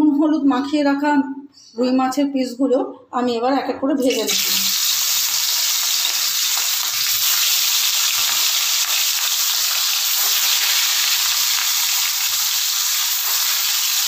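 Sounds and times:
fish sizzling in oil: 0:04.2 - 0:14.0.

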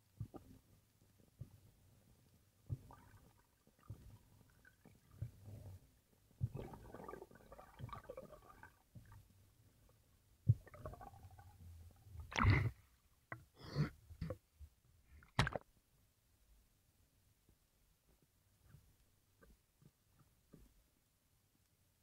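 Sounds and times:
bubbling bursts: 0:06.4 - 0:09.1, 0:10.5 - 0:11.5.

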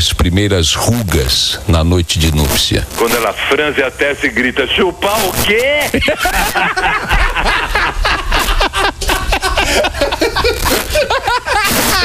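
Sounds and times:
people laughing loudly: 0:05.9 - 0:12.0.

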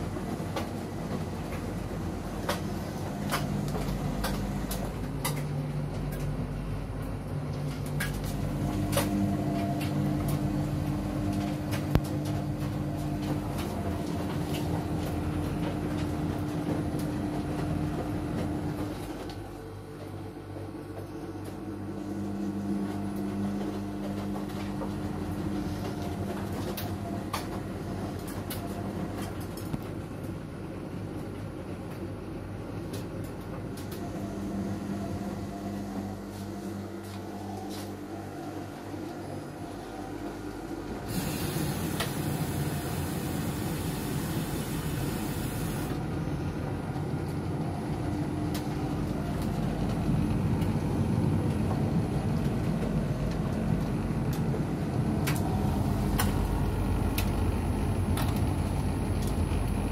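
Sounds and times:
laundry machines humming: 0:00.0 - 0:59.9
loud hiss: 0:41.1 - 0:45.9.

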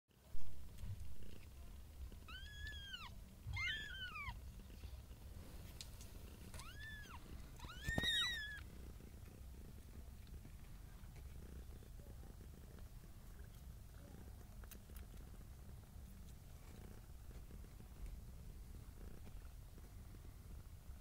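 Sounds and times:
cat purring: 0:00.3 - 0:21.0
cat meowing: 0:02.3 - 0:04.4, 0:06.6 - 0:08.6.

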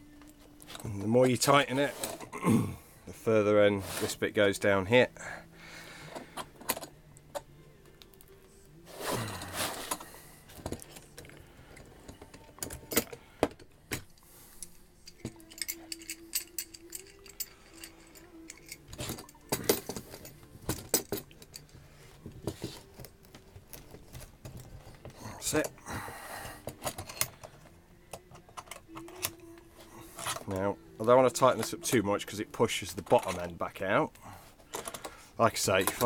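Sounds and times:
metal clamps clicking and clinking: 0:00.6 - 0:02.3, 0:06.1 - 0:07.5, 0:10.6 - 0:13.6, 0:14.6 - 0:21.8, 0:26.6 - 0:29.6, 0:30.2 - 0:32.0, 0:32.6 - 0:33.6, 0:34.2 - 0:36.0.

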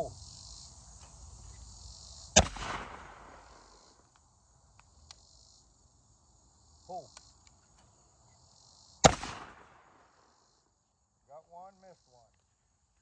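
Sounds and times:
crickets chirring: 0:00.0 - 0:13.0
shotgun shot: 0:02.4 - 0:03.9, 0:09.0 - 0:10.0.

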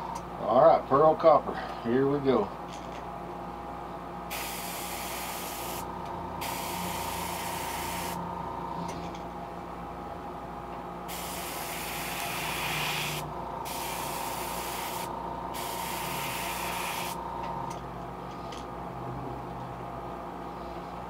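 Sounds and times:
steady hum: 0:00.0 - 0:21.0
airbrush spraying: 0:04.3 - 0:08.2, 0:11.1 - 0:17.2.

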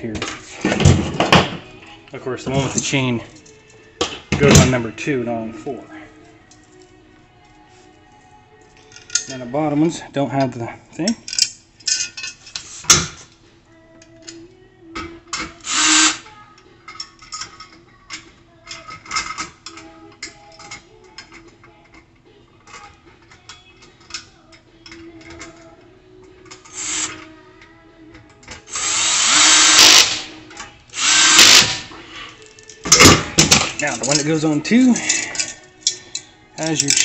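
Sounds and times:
metal parts clinking: 0:08.6 - 0:09.5, 0:11.0 - 0:12.7, 0:16.9 - 0:22.0, 0:29.7 - 0:37.0
power drill driving bolts into metal: 0:15.6 - 0:16.2, 0:28.7 - 0:30.3, 0:31.0 - 0:31.9.

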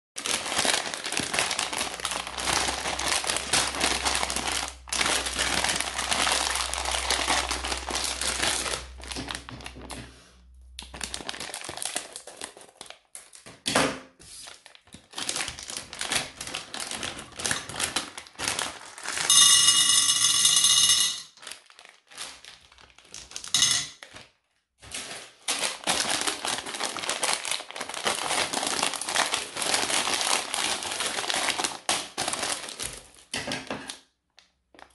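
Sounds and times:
plastic bags crinkling: 0:00.2 - 0:10.0, 0:10.8 - 0:13.4, 0:14.4 - 0:19.6, 0:21.3 - 0:24.2, 0:24.8 - 0:33.4.

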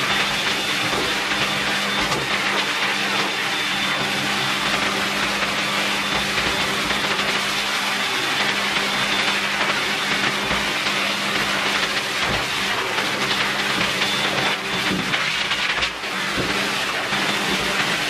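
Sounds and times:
dryer air rushing: 0:00.0 - 0:18.0.

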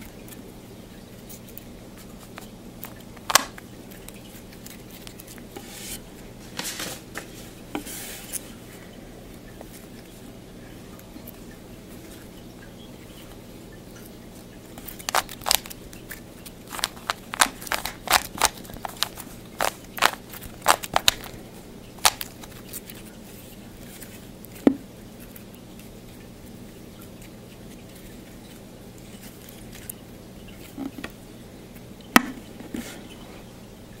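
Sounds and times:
puzzle cube clicking: 0:03.3 - 0:03.6, 0:15.0 - 0:15.8, 0:16.7 - 0:21.3, 0:22.0 - 0:22.4.

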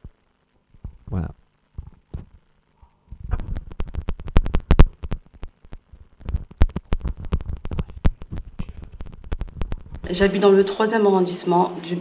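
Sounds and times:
rapid sharp clicks and crackles: 0:01.6 - 0:10.1.

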